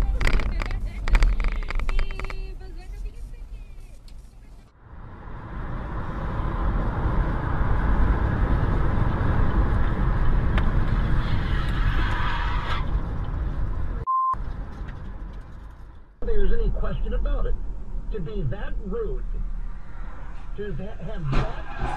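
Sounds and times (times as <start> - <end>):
road and wind noise: 0.0 - 21.9
short beep: 14.1 - 14.4.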